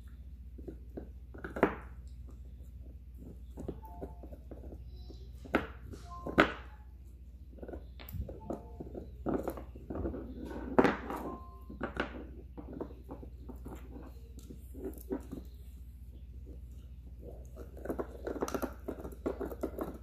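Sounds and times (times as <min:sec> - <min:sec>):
puppy chewing hard chew stick: 0:12.6 - 0:20.0.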